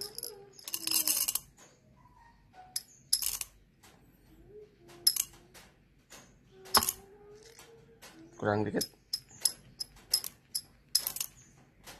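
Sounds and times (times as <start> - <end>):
coffee beans clinking into glass: 6.8 - 7.0.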